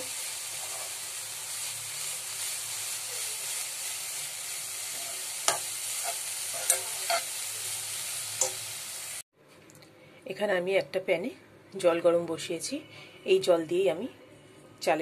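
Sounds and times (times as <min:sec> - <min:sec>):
food sizzling: 0:00.0 - 0:09.3
spoon scraping a pan: 0:00.6 - 0:01.0, 0:04.9 - 0:07.4
spoon clicking against pan: 0:06.6 - 0:07.2.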